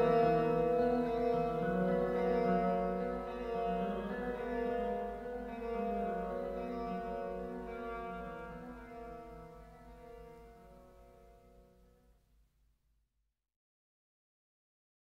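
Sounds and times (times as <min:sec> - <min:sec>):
heavy metal guitar chord ringing: 0:00.0 - 0:09.6.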